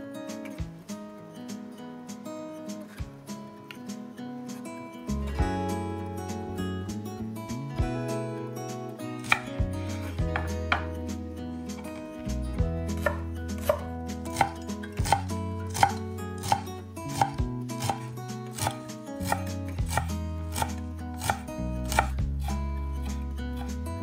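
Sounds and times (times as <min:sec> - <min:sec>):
knife chopping on cutting board: 0:09.2 - 0:09.6, 0:10.2 - 0:11.0, 0:12.9 - 0:22.3.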